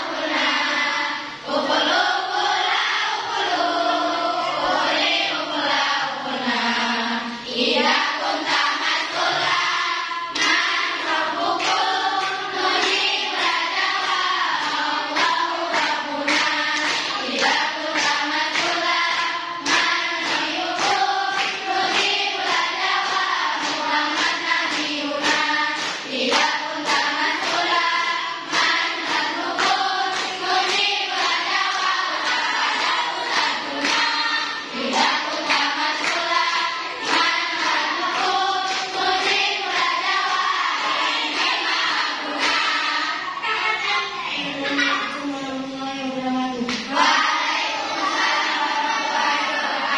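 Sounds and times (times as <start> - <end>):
girls singing in unison: 0.0 - 49.9
hand claps: 10.3 - 43.2, 46.6 - 47.2.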